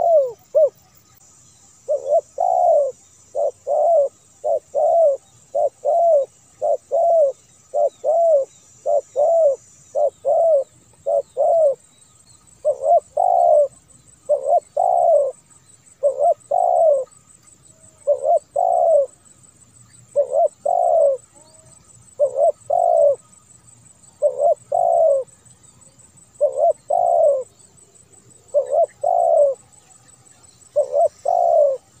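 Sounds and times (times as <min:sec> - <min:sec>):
dove cooing: 0:00.0 - 0:01.0, 0:01.8 - 0:11.8, 0:12.6 - 0:17.2, 0:17.8 - 0:19.2, 0:20.1 - 0:23.3, 0:24.0 - 0:25.4, 0:26.3 - 0:29.8, 0:30.4 - 0:32.0.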